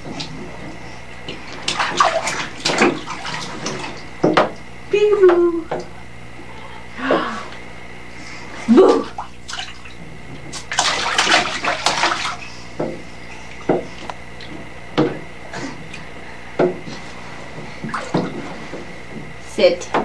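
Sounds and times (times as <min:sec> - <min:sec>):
bath water splashing: 0:00.0 - 0:07.3, 0:08.6 - 0:14.5, 0:17.5 - 0:19.1.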